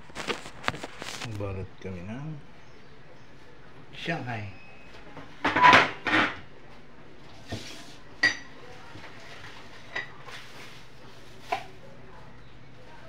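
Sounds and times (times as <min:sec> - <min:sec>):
dishes and utensils clinking: 0:05.4 - 0:06.4, 0:07.5 - 0:08.6, 0:09.4 - 0:10.4.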